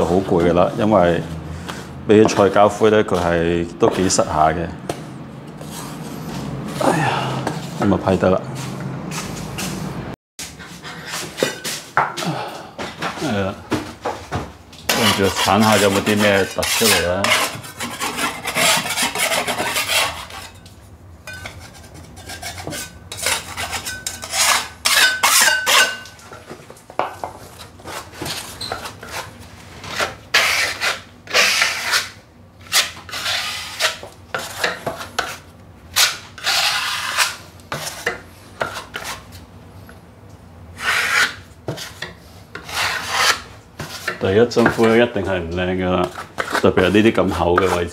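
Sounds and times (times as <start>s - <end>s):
putty knife scraping compound: 5.5s - 8.0s, 14.9s - 20.7s, 21.3s - 26.2s, 27.6s - 39.4s, 40.8s - 47.9s.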